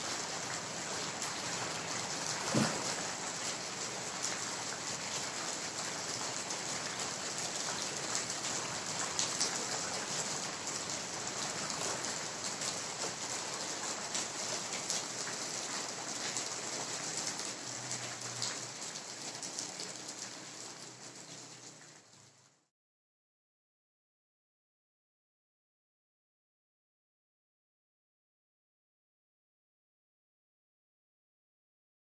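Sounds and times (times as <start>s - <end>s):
rain-like patter: 0.0s - 22.7s.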